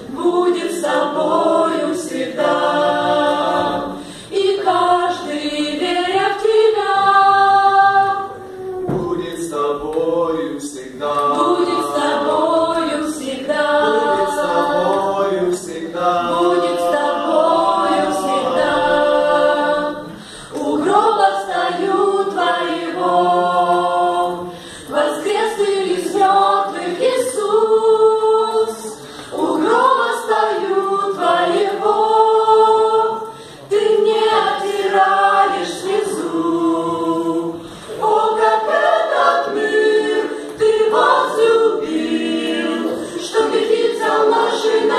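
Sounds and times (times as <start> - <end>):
mixed choir singing a cappella: 0.0 - 44.9.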